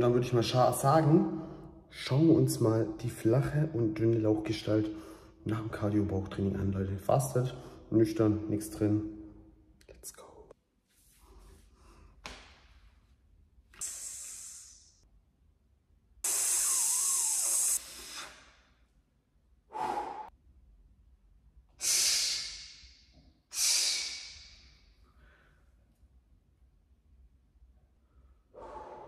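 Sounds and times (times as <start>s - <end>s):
man exhaling hard: 13.8s - 14.9s, 19.7s - 20.3s, 23.5s - 24.7s, 28.5s - 29.0s.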